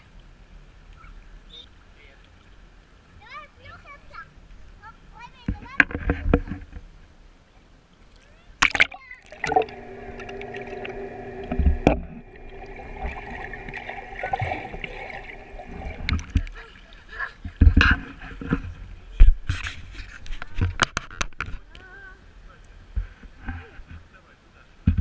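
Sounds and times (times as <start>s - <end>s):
water splashing: 8.6s - 18.6s
muffled underwater hum: 9.3s - 17.0s.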